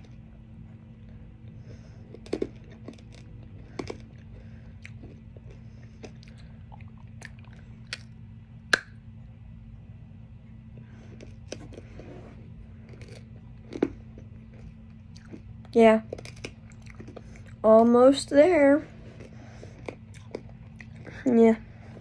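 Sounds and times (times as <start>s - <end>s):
low hum: 0.0s - 22.0s
teeth crunching hard candy: 2.0s - 8.9s, 12.8s - 17.6s, 19.1s - 21.3s.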